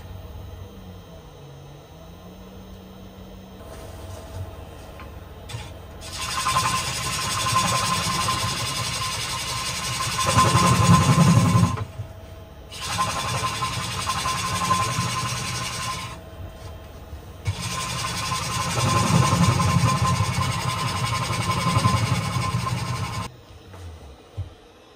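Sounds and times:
gouge cutting wood on lathe: 5.5s - 11.9s, 12.7s - 16.2s, 17.4s - 23.3s.

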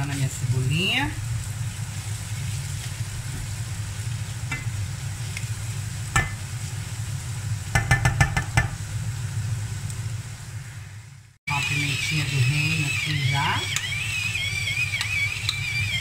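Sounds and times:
onion sizzling in a pan: 0.0s - 16.0s
spatula stirring: 1.2s - 6.8s, 11.5s - 16.0s
spatula tapping against pan: 6.2s - 6.4s, 7.7s - 8.8s.

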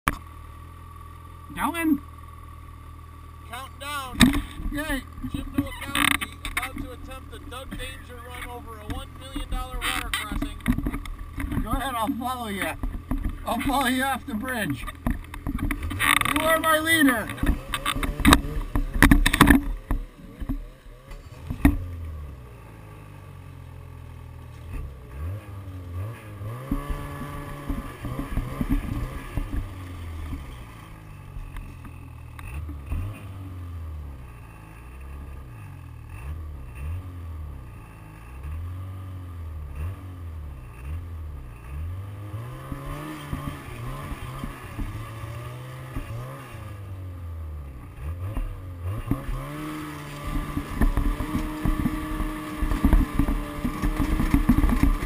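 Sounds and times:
snowmobile engine revving: 3.4s - 55.0s.

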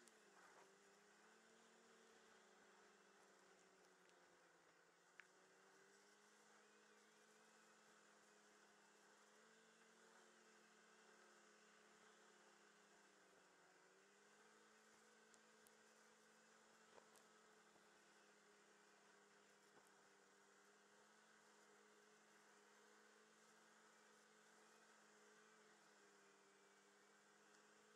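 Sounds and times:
faint ticks: 2.2s - 7.1s, 14.5s - 25.1s, 25.7s - 27.9s.

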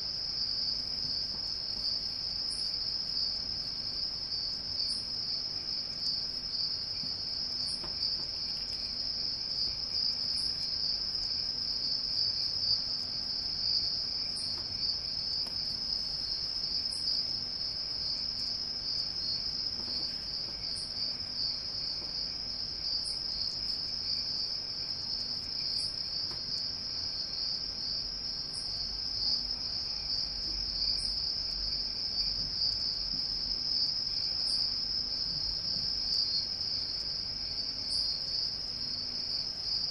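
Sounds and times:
crickets chirring: 0.0s - 39.9s.

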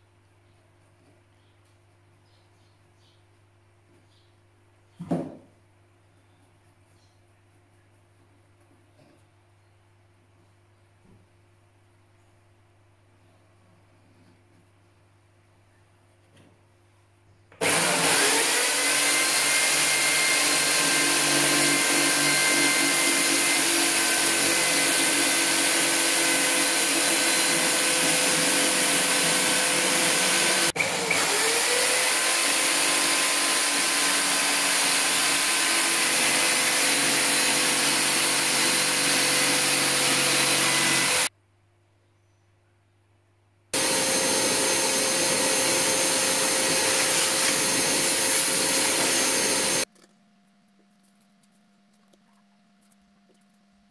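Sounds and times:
jigsaw cutting wood: 17.6s - 41.3s, 43.8s - 49.9s
shop vacuum running: 17.6s - 41.3s, 43.8s - 49.9s.

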